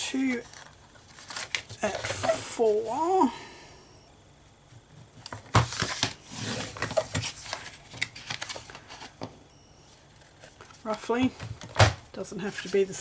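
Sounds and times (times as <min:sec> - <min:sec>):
paper rustling and sliding: 0:00.2 - 0:03.1, 0:05.5 - 0:09.2.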